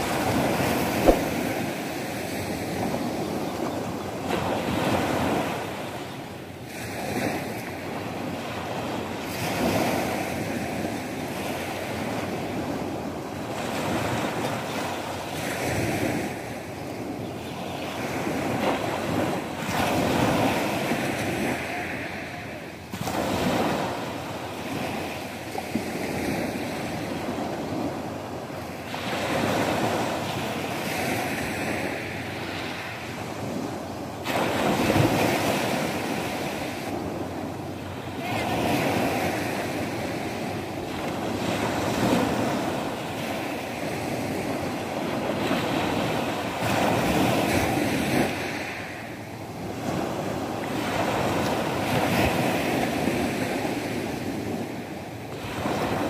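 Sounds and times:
small waves breaking on beach: 0:00.0 - 0:56.0.

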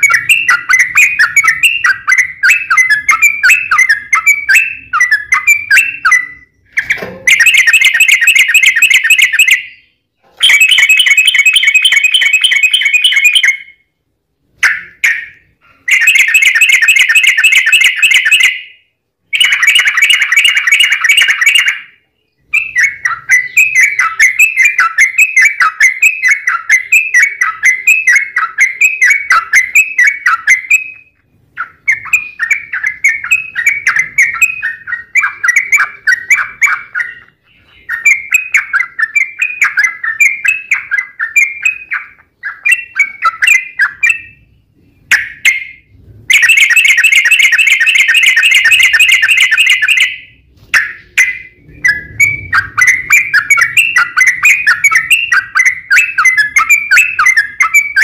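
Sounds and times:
rapid bird trill: 0:00.0 - 0:13.9, 0:14.5 - 0:58.0
bird singing chirping notes: 0:00.0 - 0:58.0.

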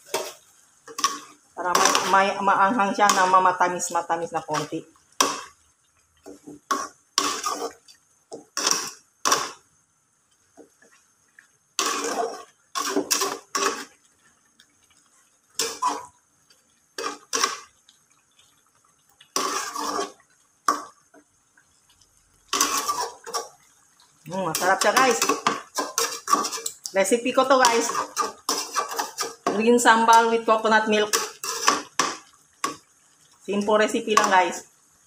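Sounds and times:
metal spatula scraping a wok: 0:00.0 - 0:02.4, 0:06.7 - 0:07.8, 0:08.6 - 0:09.6, 0:11.8 - 0:14.0, 0:15.6 - 0:16.1, 0:17.0 - 0:17.7, 0:19.4 - 0:20.9, 0:22.5 - 0:23.6, 0:24.5 - 0:26.8, 0:27.6 - 0:30.3, 0:31.0 - 0:32.8.

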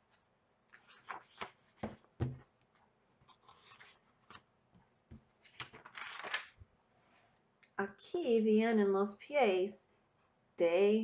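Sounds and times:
soft rustle of paper: 0:00.0 - 0:07.5
book pages turning: 0:00.1 - 0:04.5, 0:05.2 - 0:06.7
paper flicks and taps: 0:00.8 - 0:02.4, 0:05.1 - 0:06.6.

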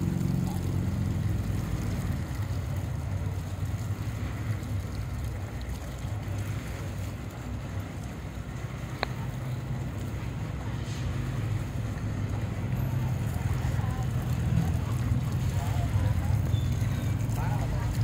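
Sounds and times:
low engine rumble: 0:00.0 - 0:18.0.

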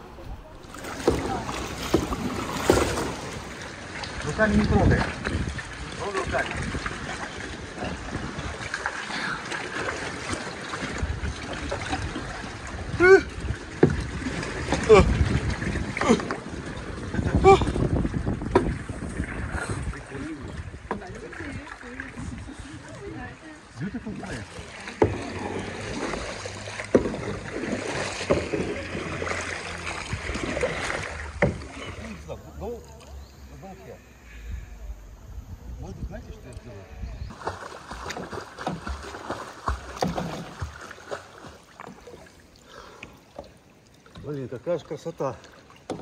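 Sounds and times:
paddle splashes: 0:00.0 - 0:34.7, 0:37.2 - 0:46.0
water lapping and trickling: 0:00.0 - 0:46.0
wind rumble on microphone: 0:04.1 - 0:08.8, 0:10.8 - 0:23.4, 0:34.4 - 0:39.0.

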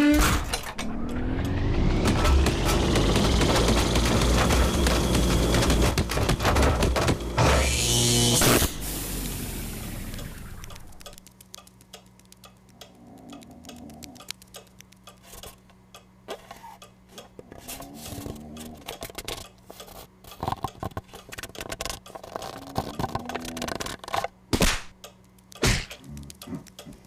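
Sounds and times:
tiny light ticking footsteps: 0:10.6 - 0:17.4, 0:24.9 - 0:27.0.

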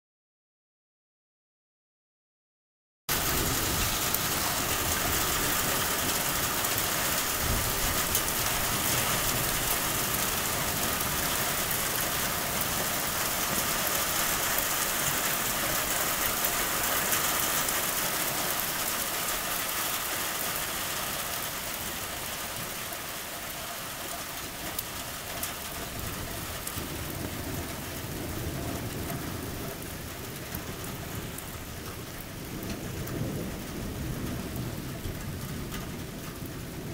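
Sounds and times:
low rumble of thunder: 0:03.1 - 0:16.8, 0:25.3 - 0:36.9
steady rain falling: 0:03.1 - 0:36.9.

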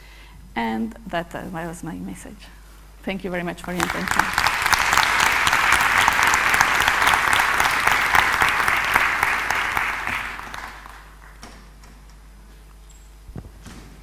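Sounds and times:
audience applauding: 0:03.6 - 0:11.5.

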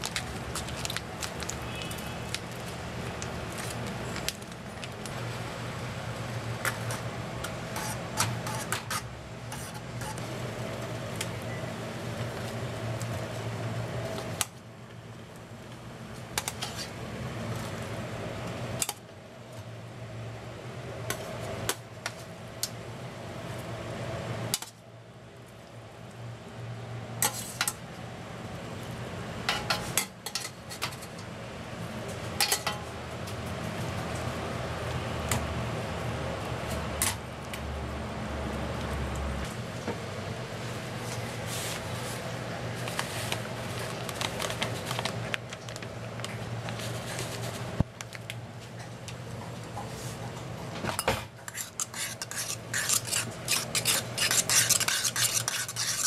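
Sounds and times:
foil sachet crinkling: 0:00.0 - 0:05.2, 0:41.2 - 0:48.3.

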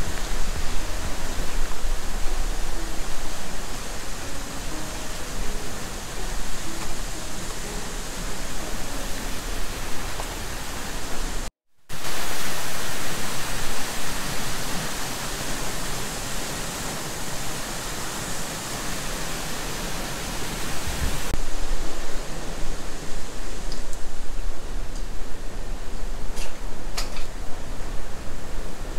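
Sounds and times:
waterfall roar: 0:00.0 - 0:28.9.

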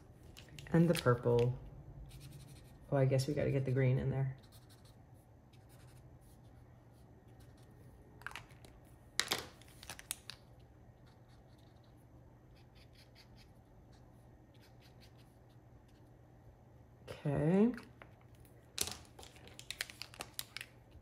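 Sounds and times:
marker caps clicking: 0:00.3 - 0:01.5
marker tip scratching on card: 0:04.4 - 0:06.0.

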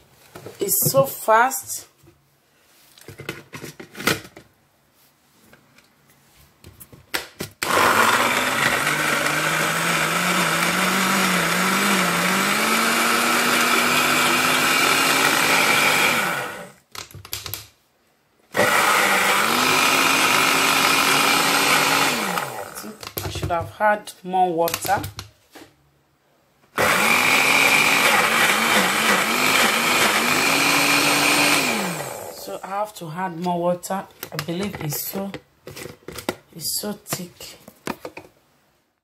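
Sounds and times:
blender motor running: 0:07.6 - 0:16.8, 0:18.6 - 0:23.1, 0:26.8 - 0:32.5.

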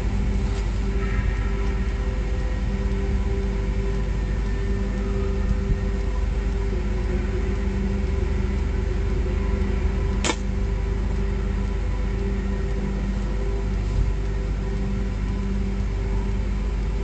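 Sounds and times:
droning motor hum: 0:00.0 - 0:17.0
sharp snap: 0:10.2 - 0:10.5.

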